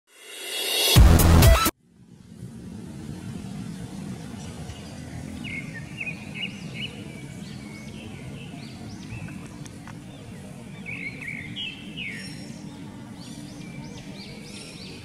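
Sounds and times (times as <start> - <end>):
bird chirping: 3.7 - 15.0.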